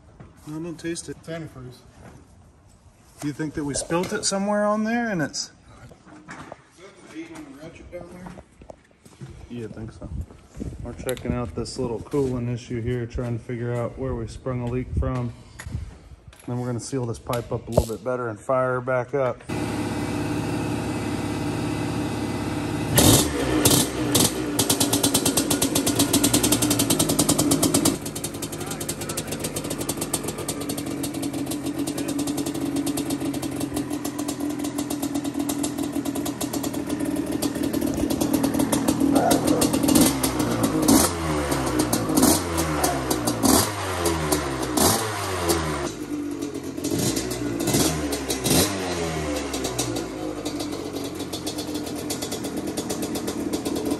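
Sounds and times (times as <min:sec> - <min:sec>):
two-stroke engine revving and idling: 0:19.5 - 0:53.9.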